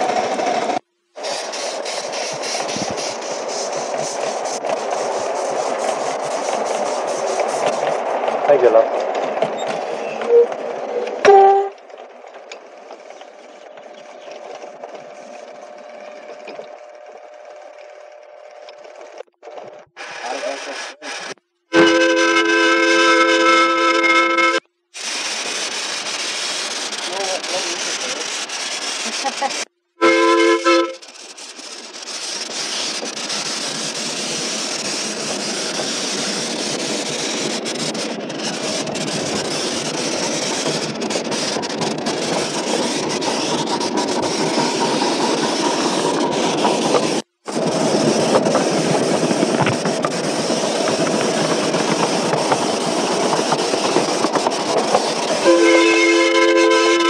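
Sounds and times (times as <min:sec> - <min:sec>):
locomotive running on track: 0:00.0 - 0:57.0
steam whistle: 0:11.2 - 0:11.8, 0:21.1 - 0:24.6, 0:30.0 - 0:31.0, 0:55.4 - 0:57.0.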